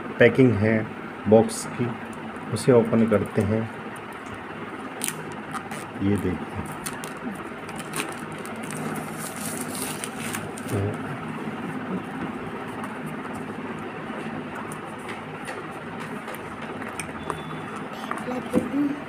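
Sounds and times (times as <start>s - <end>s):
steady background hum: 0.0s - 19.0s
plastic wrap crinkling: 5.0s - 11.0s.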